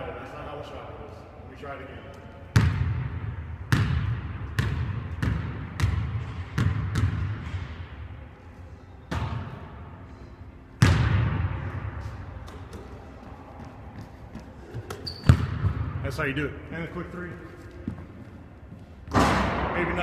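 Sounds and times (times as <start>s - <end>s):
basketball striking wall: 2.6s - 7.8s, 10.8s - 11.6s
basketball bouncing on wooden floor: 3.7s - 7.4s, 14.0s - 15.8s.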